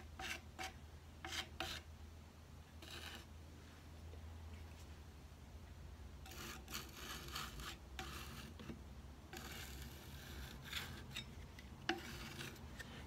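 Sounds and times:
putty knife scraping wood: 0.0 - 1.9, 2.8 - 3.3, 6.2 - 13.0.

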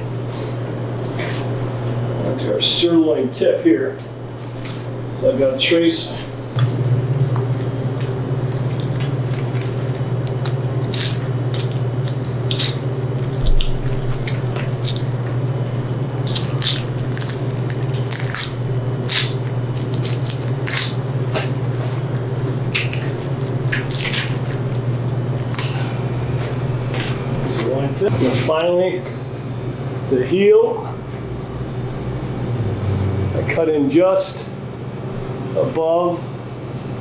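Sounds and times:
steady low hum: 0.0 - 37.0
knife cutting meat and bone: 8.5 - 21.6.

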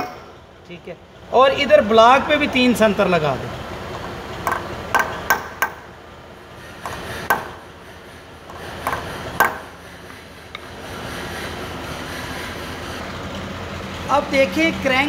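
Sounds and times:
hammer tapping metal punch: 4.0 - 5.9, 6.8 - 7.6, 8.5 - 9.7.

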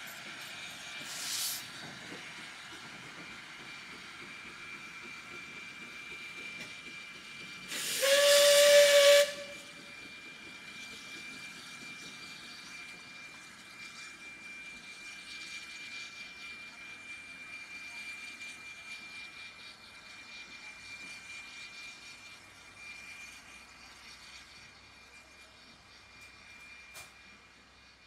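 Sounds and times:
steam hiss: 0.0 - 16.0
steam locomotive whistle blast: 7.7 - 9.9.

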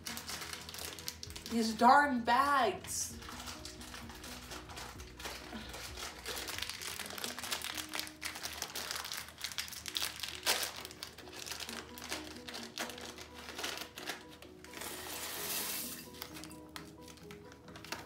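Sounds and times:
plastic bag crinkling: 0.0 - 18.0.

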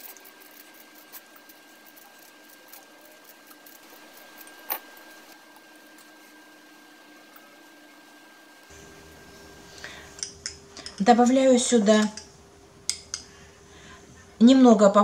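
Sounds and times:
peeler scraping orange: 0.0 - 6.5.

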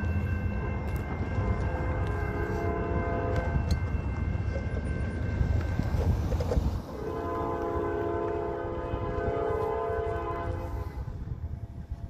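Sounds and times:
distant train air horn: 0.5 - 3.9, 6.9 - 11.7.

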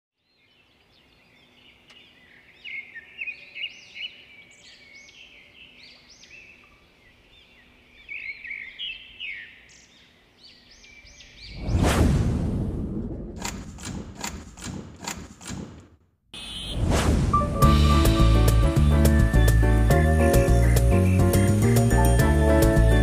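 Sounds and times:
small birds chirping: 0.2 - 11.7, 18.2 - 23.0.

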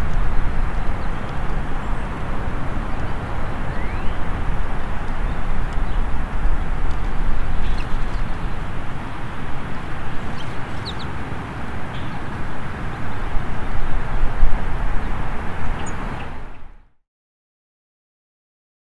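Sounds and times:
loud outdoor rumble: 0.0 - 16.9
faint bird chirps: 3.7 - 4.3.

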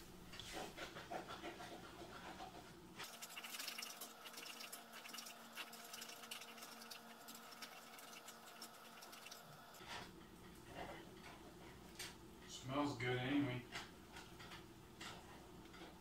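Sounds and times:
eggs sizzling in a frying pan: 3.0 - 9.8.

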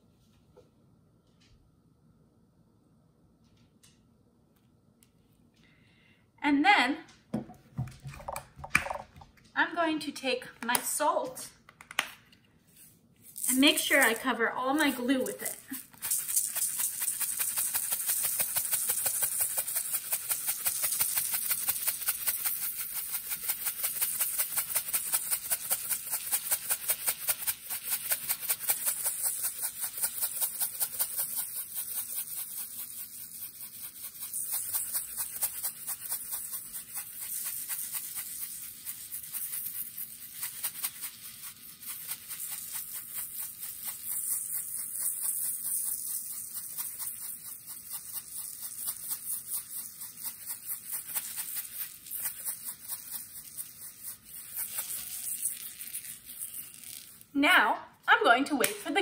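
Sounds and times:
salt rattling in a shaker: 12.6 - 57.4.

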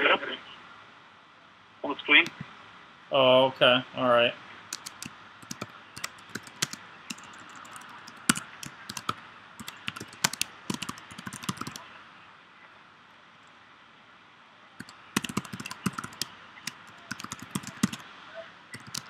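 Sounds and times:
computer keyboard typing: 4.7 - 11.8, 14.8 - 18.0, 18.7 - 19.0.

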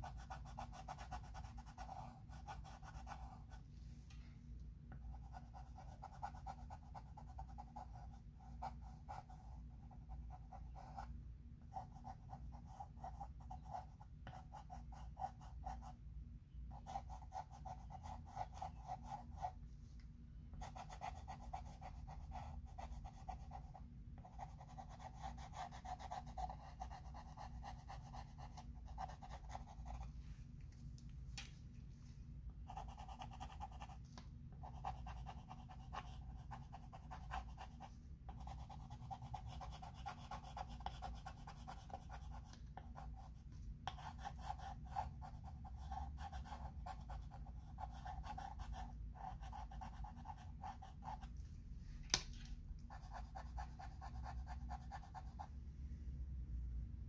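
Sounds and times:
chalk scratching on chalkboard: 34.6 - 51.4.

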